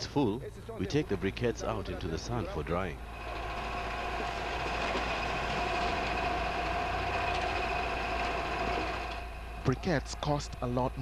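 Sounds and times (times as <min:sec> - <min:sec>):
steady high whine: 0:00.0 - 0:11.0
wheelbarrow rolling: 0:03.0 - 0:09.8.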